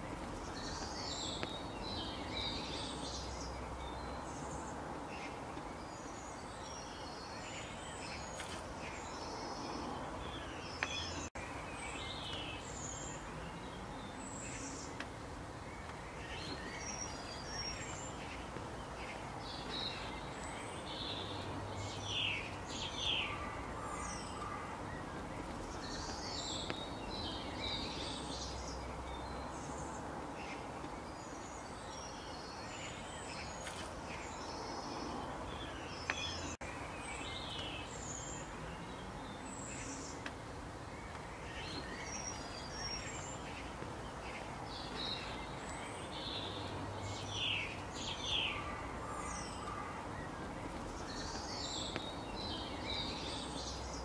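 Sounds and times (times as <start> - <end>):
outdoor background hiss: 0.0 - 54.0
songbirds chirping: 0.0 - 54.0.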